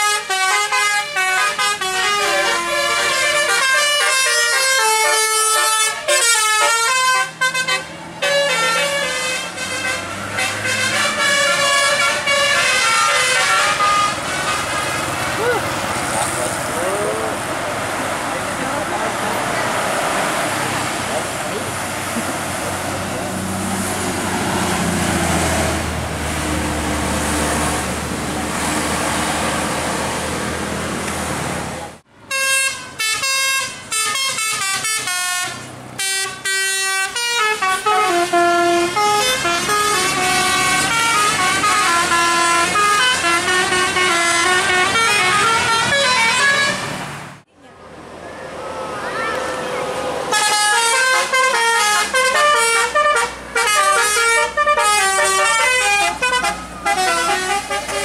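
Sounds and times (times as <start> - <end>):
multi-tone bus horns playing tunes: 0.0 - 15.4, 32.2 - 47.1, 49.2 - 58.0
bus engine and road noise: 0.0 - 58.0.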